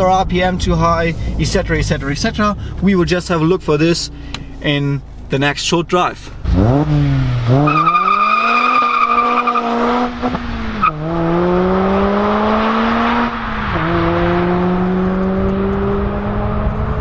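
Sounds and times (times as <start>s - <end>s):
car engine accelerating hard: 6.4s - 17.0s.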